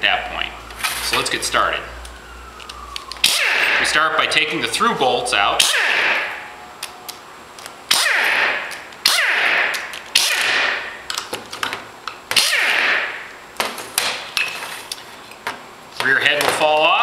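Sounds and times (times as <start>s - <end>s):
pneumatic impact wrench: 3.2s - 3.8s, 5.6s - 6.4s, 7.9s - 11.0s, 12.3s - 13.3s.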